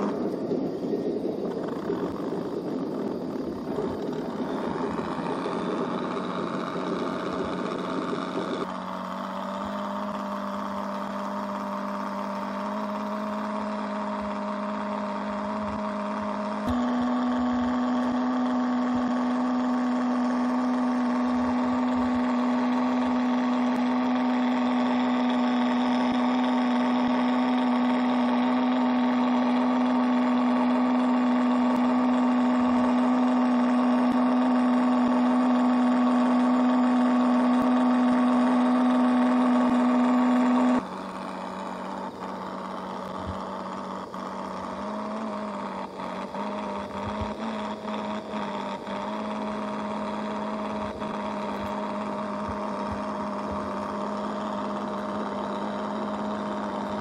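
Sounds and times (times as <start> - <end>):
steady motor hum: 0.0 - 57.0.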